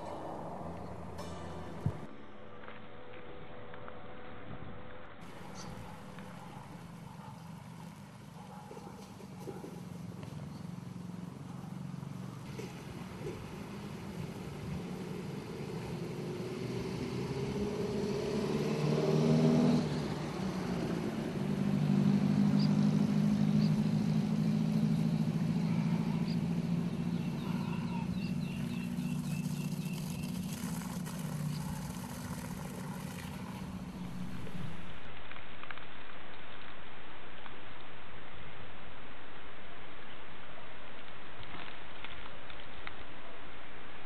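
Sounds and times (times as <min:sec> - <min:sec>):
engine running: 0:05.2 - 0:35.2.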